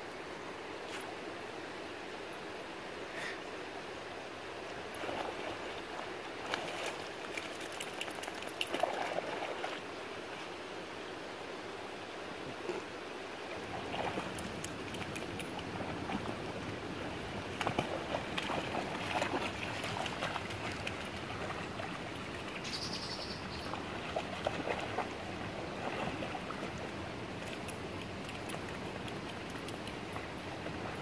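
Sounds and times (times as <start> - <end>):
steady watery hiss: 0.0 - 5.0
puppy splashing through water: 5.0 - 9.8, 13.7 - 16.4, 17.3 - 22.7, 23.5 - 31.0.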